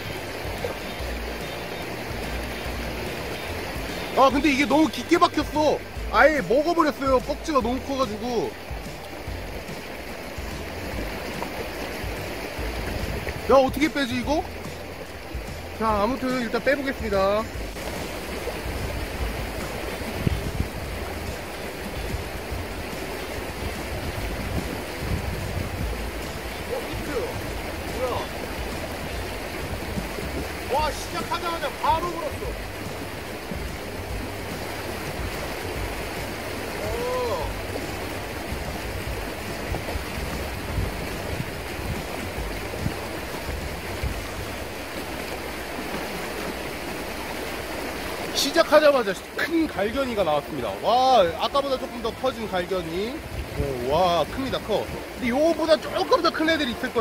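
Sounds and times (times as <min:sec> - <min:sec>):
dull low bumps: 0:00.0 - 0:16.3, 0:17.0 - 0:36.6, 0:37.4 - 0:46.1
river water rushing over stones: 0:00.0 - 0:57.0.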